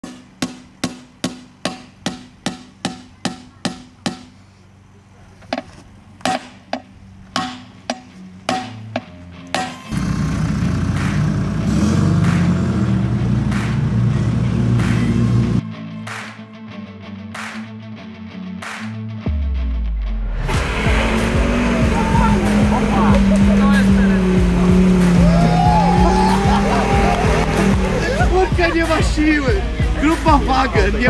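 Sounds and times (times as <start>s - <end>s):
loud electric guitar music: 8.8s - 31.0s.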